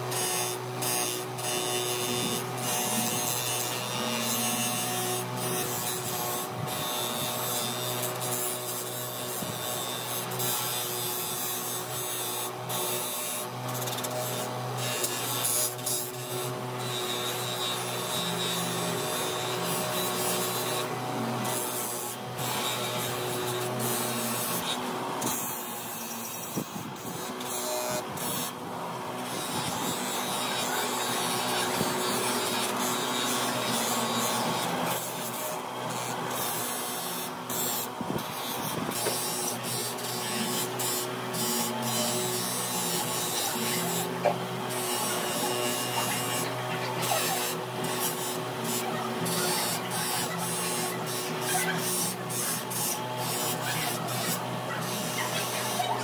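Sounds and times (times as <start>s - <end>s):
metal scraping on polishing wheel: 0.0s - 28.6s, 29.2s - 56.0s
bench grinder running: 0.0s - 56.0s.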